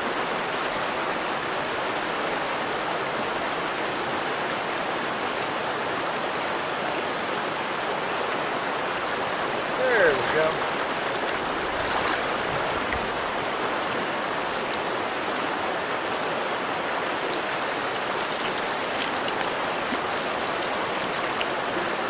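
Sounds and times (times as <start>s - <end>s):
stream running: 0.0s - 22.0s
fish splashing at surface: 17.1s - 22.0s.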